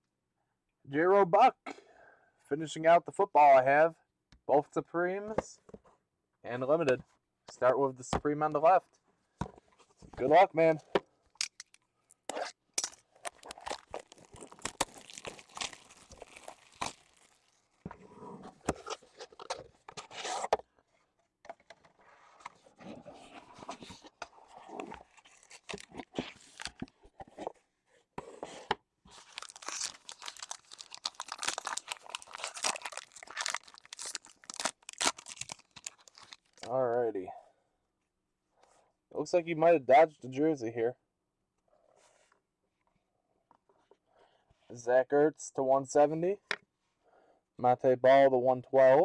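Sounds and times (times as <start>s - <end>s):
foil pack crinkling: 12.8s - 17.8s, 25.0s - 26.9s, 29.1s - 36.7s.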